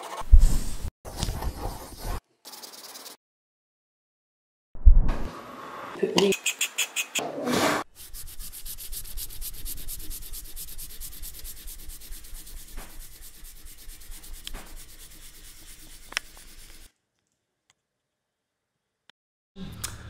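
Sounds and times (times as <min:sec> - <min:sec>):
crayon scribbling on paper: 0:01.1 - 0:03.2, 0:08.0 - 0:16.9.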